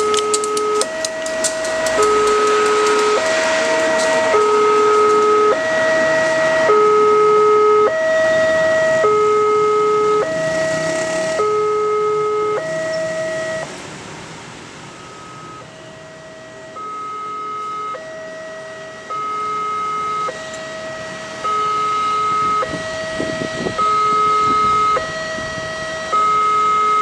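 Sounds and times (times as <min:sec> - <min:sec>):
train running past: 0:00.0 - 0:06.7
two-tone crossing alarm: 0:00.0 - 0:13.8, 0:14.9 - 0:27.0.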